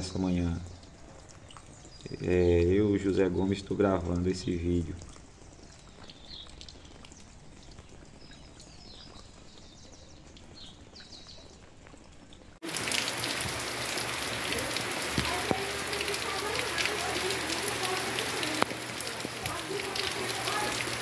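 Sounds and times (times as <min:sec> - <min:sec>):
rain falling: 0:00.0 - 0:21.0
heavy rain hiss: 0:12.6 - 0:21.0.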